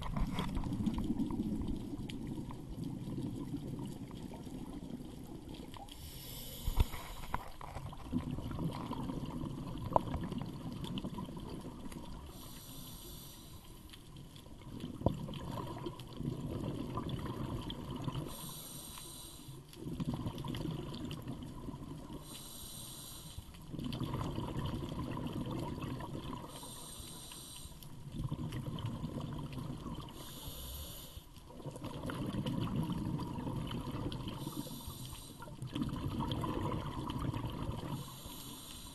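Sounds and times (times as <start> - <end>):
exhaled air bubbling: 0.0 - 38.9
regulator inhale hiss: 5.9 - 7.6, 12.2 - 13.9, 18.2 - 19.7, 22.1 - 23.7, 26.4 - 28.0, 30.1 - 31.4, 34.3 - 35.6, 37.9 - 38.9.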